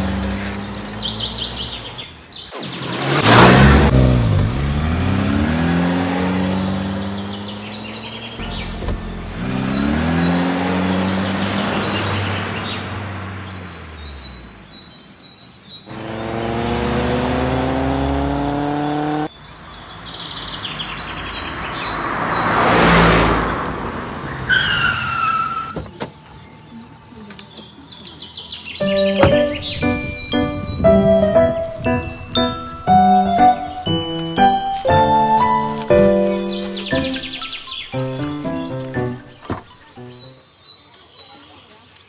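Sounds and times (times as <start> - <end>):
car engine revving: 0.0 - 14.8, 15.9 - 19.3, 20.2 - 25.7, 28.9 - 39.5
bird chirps: 0.4 - 3.1, 7.0 - 16.0, 25.6 - 42.0
whoosh of car passing: 20.6 - 25.1.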